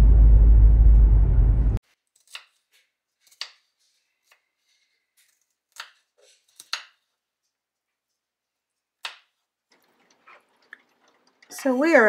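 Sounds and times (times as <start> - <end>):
car cabin road noise: 0.0 - 1.8.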